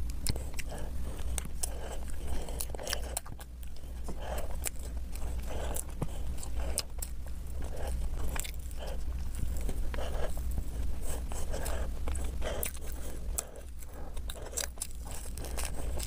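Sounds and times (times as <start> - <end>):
wet chewing of cake: 0.0 - 16.0
lip and tongue clicks: 11.3 - 16.0.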